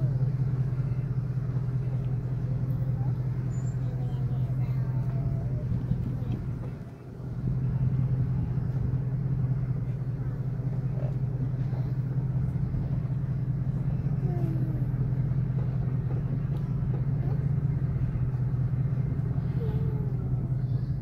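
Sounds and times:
car interior engine and road noise: 0.0 - 21.0.

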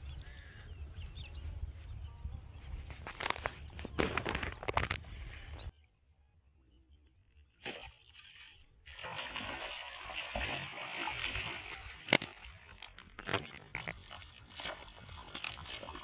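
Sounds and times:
fish thrashing and splashing: 7.7 - 16.0.

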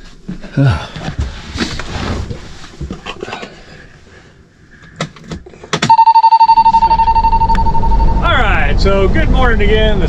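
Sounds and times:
steady high tone: 5.9 - 9.1.

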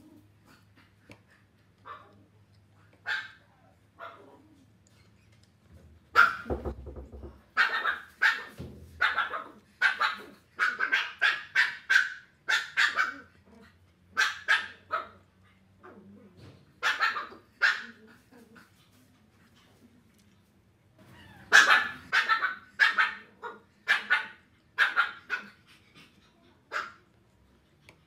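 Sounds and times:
dog barking: 3.0 - 3.4, 6.1 - 6.7, 7.6 - 13.3, 14.2 - 15.2, 16.8 - 18.0, 21.5 - 25.5.

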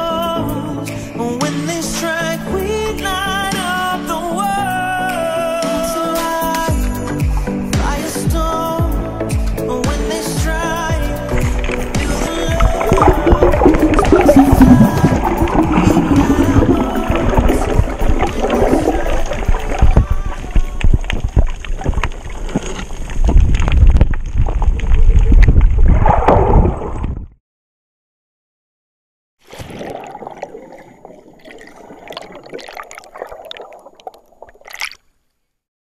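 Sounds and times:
water sloshing and gurgling: 10.9 - 27.4, 29.4 - 35.3
crackling clicks: 15.1 - 25.8.

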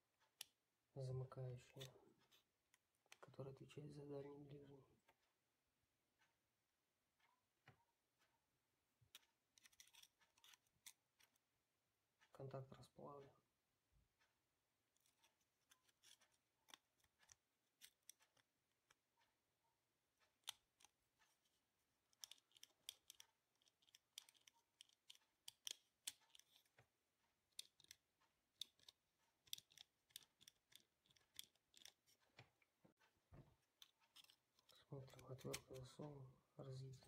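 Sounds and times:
screwdriver clicking on plastic: 9.1 - 11.4, 15.1 - 19.0, 20.2 - 26.8, 27.5 - 32.6, 33.6 - 35.8.

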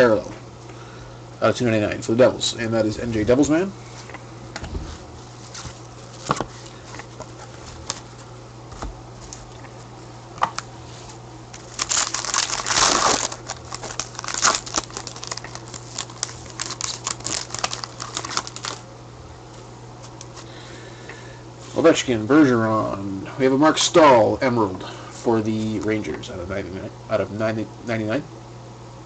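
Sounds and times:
wrapper crinkling: 11.5 - 18.8
wrapper ripping: 11.5 - 18.8
cards clicking and rustling: 11.6 - 18.8.

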